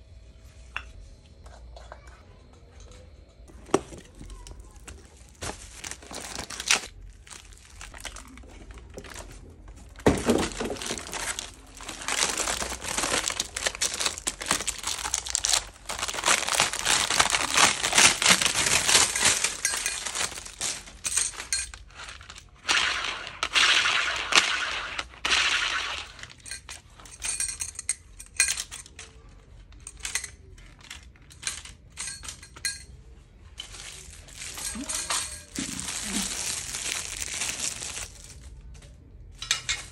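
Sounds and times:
plastic packaging crinkling: 3.5 - 26.9, 33.4 - 38.9
metal utensils clinking: 10.0 - 23.3, 25.7 - 29.2, 29.8 - 33.0, 33.6 - 38.3, 39.4 - 39.9.

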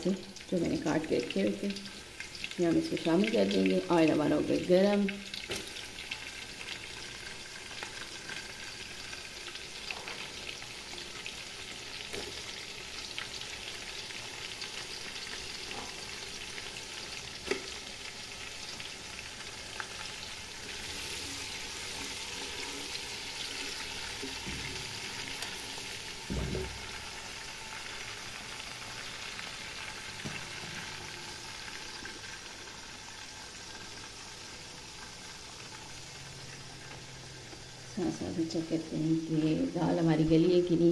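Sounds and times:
onions sizzling in oil: 0.0 - 40.9.

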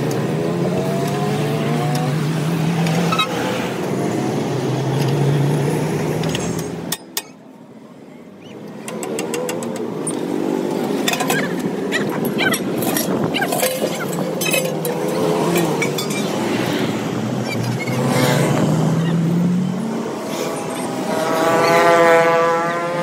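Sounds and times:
passing road traffic: 0.0 - 23.0
vehicle engine accelerating: 8.9 - 23.0.

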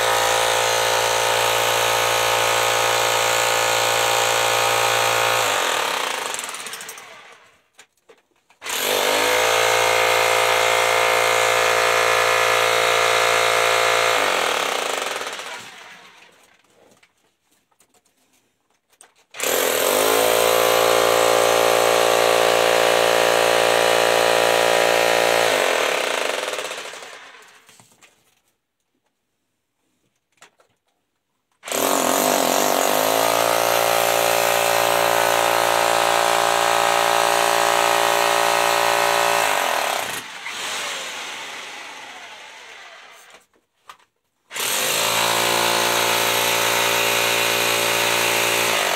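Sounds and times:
jackhammer breaking rock: 0.0 - 7.4, 8.6 - 16.4, 19.4 - 27.6, 31.6 - 42.0, 44.5 - 48.9.

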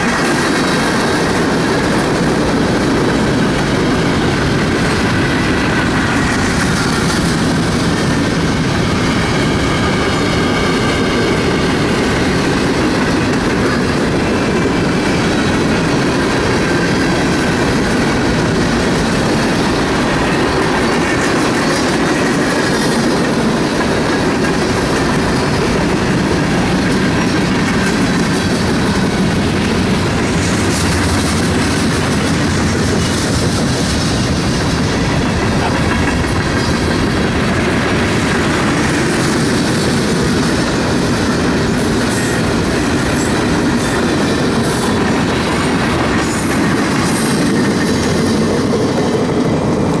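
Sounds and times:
train wheels rumbling on rails: 0.0 - 50.0.

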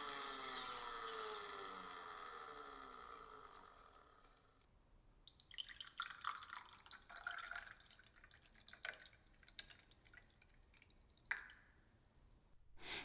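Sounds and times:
liquid dripping: 5.2 - 12.1
juice pouring into a glass: 5.3 - 11.7.

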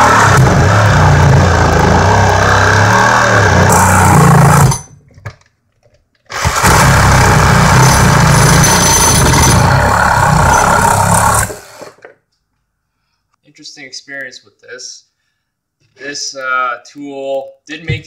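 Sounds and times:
reciprocating saw cutting wood: 0.0 - 4.9, 6.3 - 12.0.

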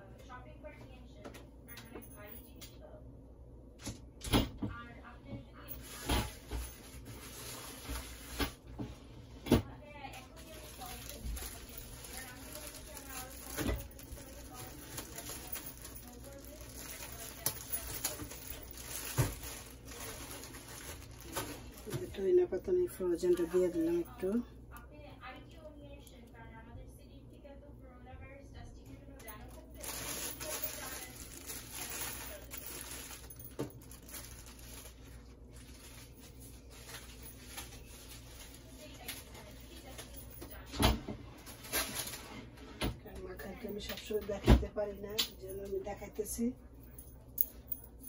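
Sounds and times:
steady low hum: 0.0 - 48.0
plastic bag crinkling: 5.6 - 8.7, 10.1 - 24.4, 29.2 - 40.6, 41.4 - 42.4.

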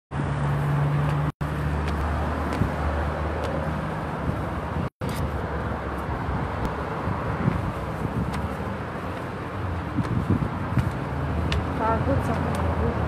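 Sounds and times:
traffic noise: 0.1 - 13.0
footsteps on concrete stairs: 1.0 - 5.3, 5.9 - 11.8.

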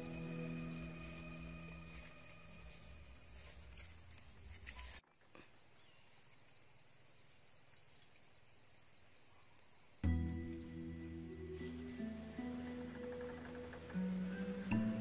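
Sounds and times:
background music: 0.0 - 3.8, 10.0 - 15.0
faint insect chirping: 0.0 - 15.0.

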